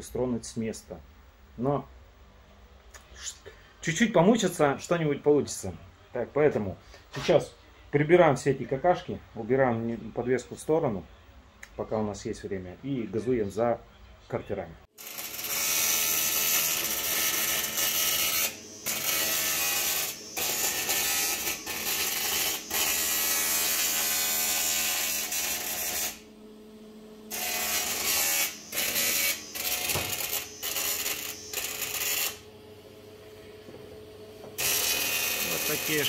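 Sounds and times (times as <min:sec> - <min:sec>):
welding arc buzzing hiss: 0:14.9 - 0:26.3, 0:26.9 - 0:32.6, 0:33.2 - 0:36.0.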